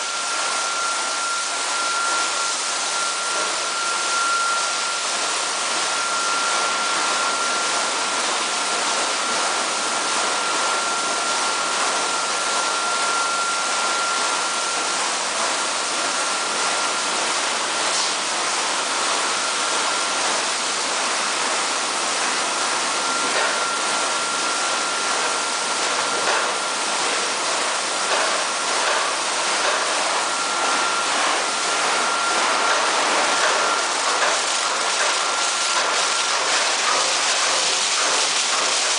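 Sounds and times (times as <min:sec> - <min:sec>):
high machinery whine: 0:00.0 - 0:38.9
water jets spraying: 0:20.2 - 0:38.9.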